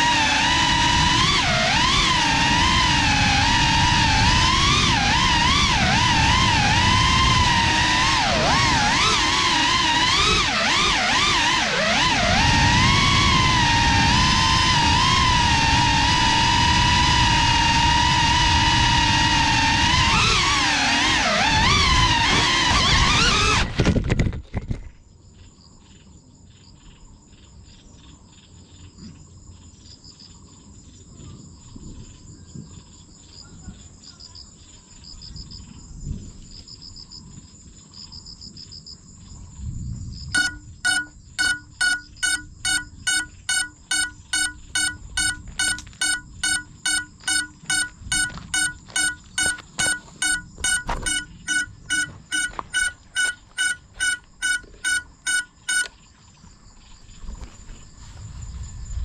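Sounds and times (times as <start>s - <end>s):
insects chirring: 24.7s - 59.0s
electronic beeper beeping: 40.4s - 56.0s.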